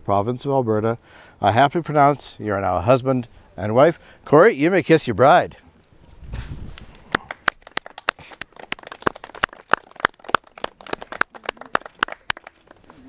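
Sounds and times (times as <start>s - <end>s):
people clapping: 7.1s - 13.0s.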